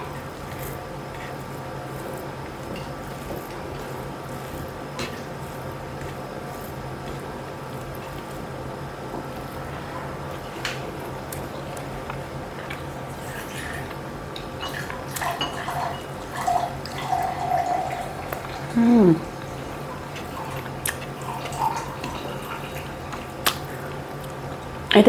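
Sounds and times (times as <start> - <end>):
fingers working food on plate: 0.0 - 15.9
wet chewing sounds: 0.0 - 24.9
steady low hum: 0.0 - 25.0.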